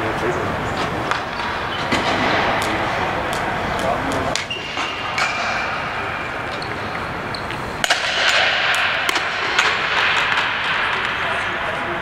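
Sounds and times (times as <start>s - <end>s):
rink background noise: 0.0s - 12.0s
sticks hitting ball: 1.1s - 5.8s, 7.8s - 11.2s
ball striking boards: 1.1s - 11.4s.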